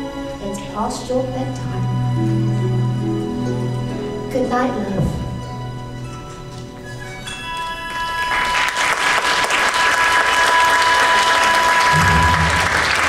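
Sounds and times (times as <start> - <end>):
held closing notes of music: 0.0 - 13.0
audience applauding: 7.5 - 13.0.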